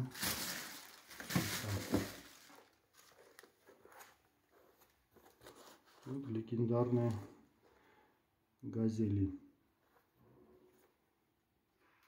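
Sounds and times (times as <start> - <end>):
tissue paper rustling: 0.0 - 6.2.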